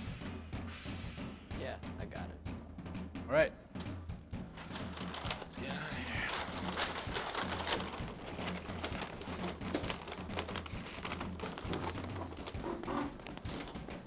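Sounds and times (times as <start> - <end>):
movement noises: 3.7 - 14.0
paper rustling and crinkling: 4.5 - 14.0.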